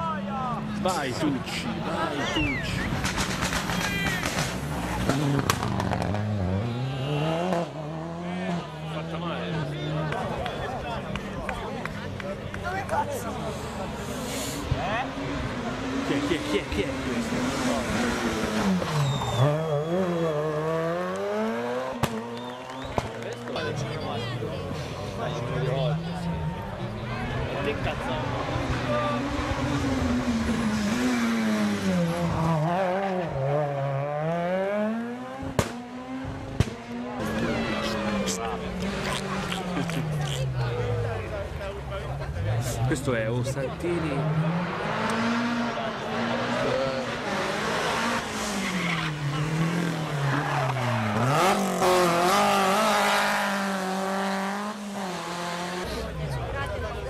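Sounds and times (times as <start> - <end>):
rally car engine revving: 0.5 - 10.6, 11.2 - 23.3, 24.6 - 57.0
sharp cracks: 3.0 - 6.1.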